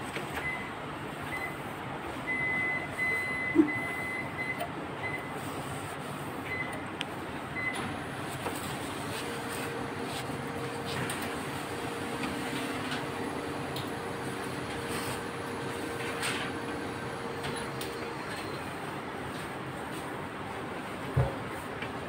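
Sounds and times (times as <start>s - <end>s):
steady background noise: 0.0s - 22.0s
cloth wiping metal rail: 5.4s - 6.4s, 8.2s - 11.7s.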